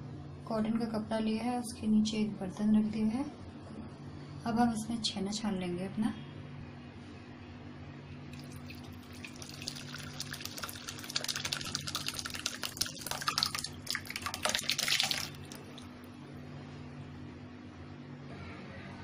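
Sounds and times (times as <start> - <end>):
whey splashing and trickling: 8.4 - 16.1.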